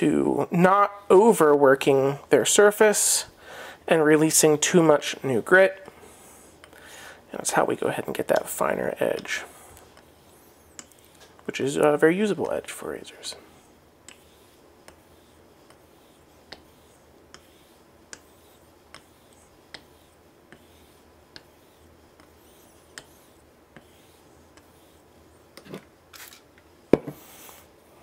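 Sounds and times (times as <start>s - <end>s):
steel rubbing on wet stone: 7.5s - 25.3s.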